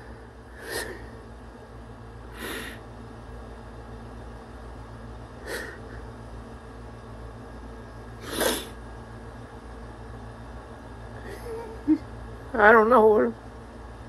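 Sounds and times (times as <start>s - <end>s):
low steady hum: 0.0s - 14.0s
person sniffing: 8.2s - 8.8s.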